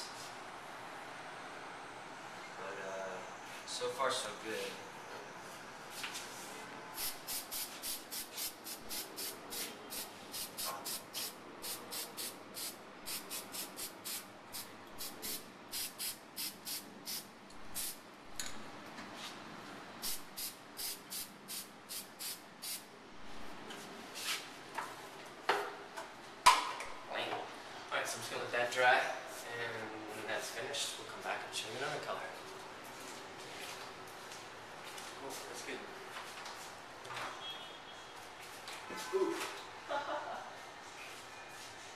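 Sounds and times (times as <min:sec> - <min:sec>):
spray paint bursts: 0:07.0 - 0:18.0, 0:20.0 - 0:22.9.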